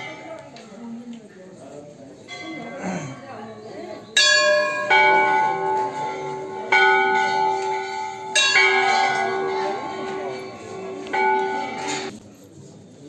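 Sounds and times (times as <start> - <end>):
brass bells ringing: 2.2 - 12.2.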